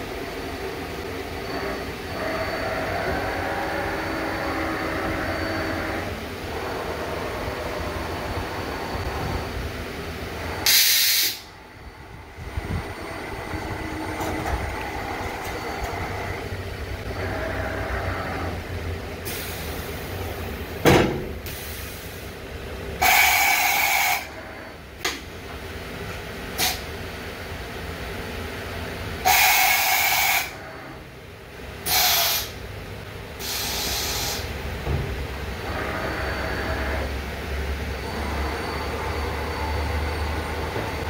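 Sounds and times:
machine hum: 0:00.0 - 0:21.5, 0:22.3 - 0:26.6, 0:32.8 - 0:41.0
compressed air hiss: 0:10.6 - 0:11.5, 0:26.6 - 0:26.9, 0:29.3 - 0:30.5, 0:31.8 - 0:32.6, 0:33.4 - 0:34.6.

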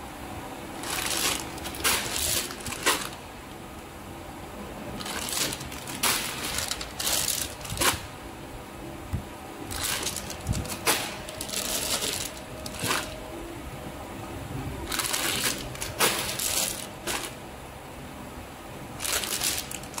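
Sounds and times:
plastic pouches crinkling: 0:00.8 - 0:03.2, 0:05.0 - 0:08.1, 0:09.7 - 0:13.2, 0:14.9 - 0:17.4, 0:19.0 - 0:20.0.

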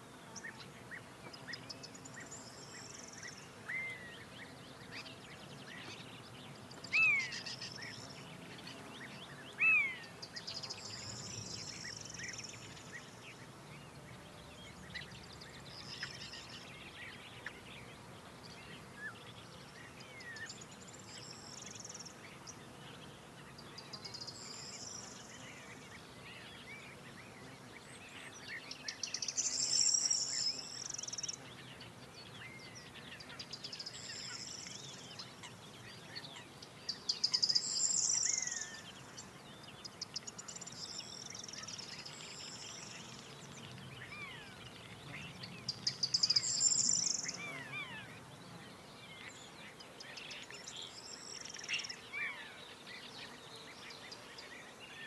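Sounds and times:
faint bird chirps: 0:27.4 - 0:31.4, 0:32.1 - 0:55.0.

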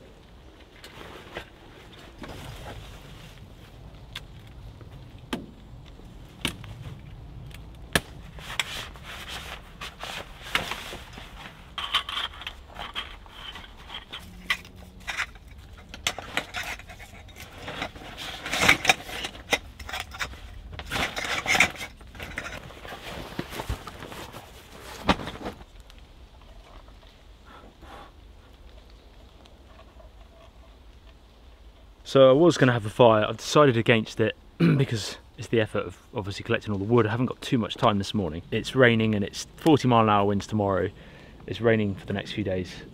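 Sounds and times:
fabric and bags rustling: 0:08.3 - 0:25.7
metal camp bed frame clattering: 0:09.2 - 0:25.6.

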